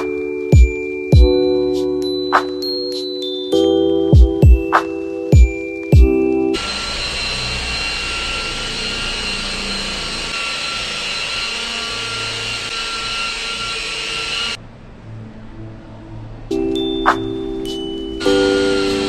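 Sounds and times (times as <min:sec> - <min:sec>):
electric car polisher whining: 0:06.6 - 0:14.6, 0:18.2 - 0:19.0.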